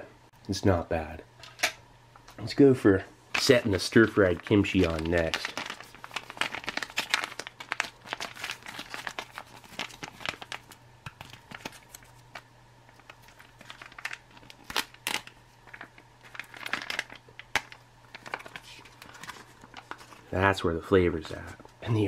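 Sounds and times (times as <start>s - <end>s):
foil pouch crinkling: 3.3s - 20.6s
foil pouch ripping: 3.4s - 20.3s.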